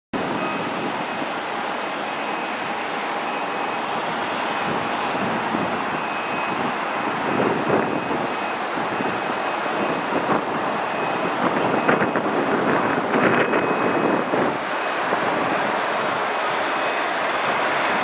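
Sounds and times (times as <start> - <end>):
fast traffic roaring past: 0.2 - 18.0.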